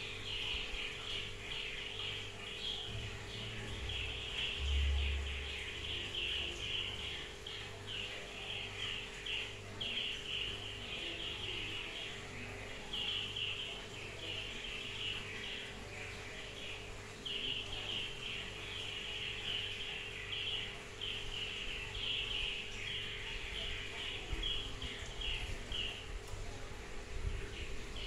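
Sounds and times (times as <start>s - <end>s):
low electrical hum: 0.0s - 28.0s
brief low rumble: 2.9s - 5.9s.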